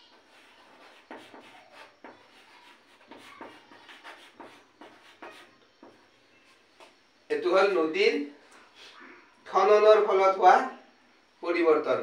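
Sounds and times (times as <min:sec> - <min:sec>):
chalk scratching on blackboard: 0:00.0 - 0:06.9.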